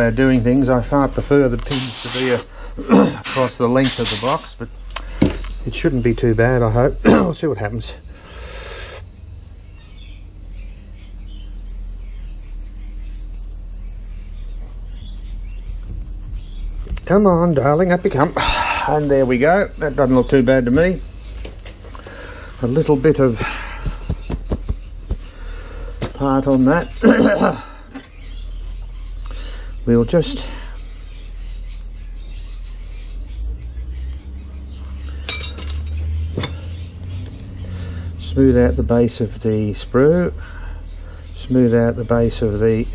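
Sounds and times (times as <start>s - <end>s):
birds chirping: 0.0s - 42.9s
steady low hum: 0.0s - 42.9s
hand tool clinking on metal box: 35.3s - 36.0s.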